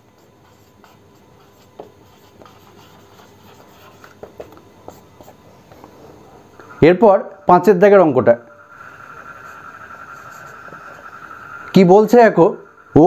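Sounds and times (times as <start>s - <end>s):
marker scratching on whiteboard: 0.0s - 6.8s, 8.7s - 11.6s.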